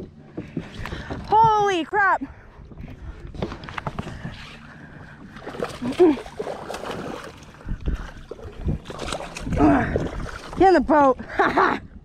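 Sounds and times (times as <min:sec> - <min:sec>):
water splashing: 0:03.5 - 0:11.3.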